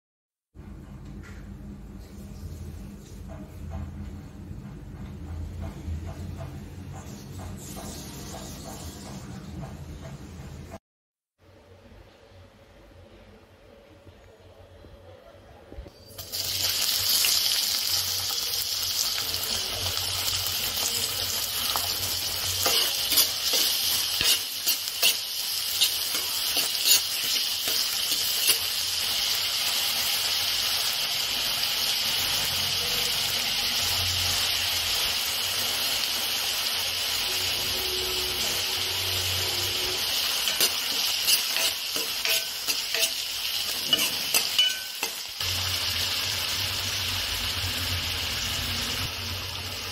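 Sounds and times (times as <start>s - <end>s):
spatula scraping and tapping pan: 5.3s - 10.2s, 21.6s - 28.8s, 40.4s - 45.4s
onions sizzling in hot oil: 15.9s - 49.9s.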